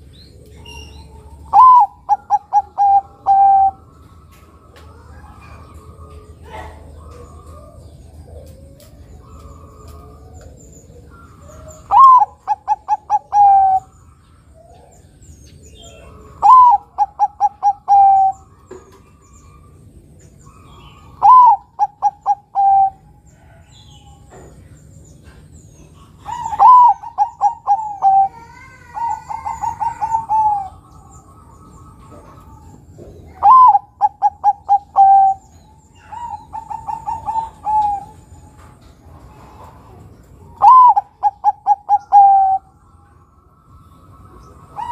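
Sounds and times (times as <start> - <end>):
dove cooing: 0.0 - 44.9.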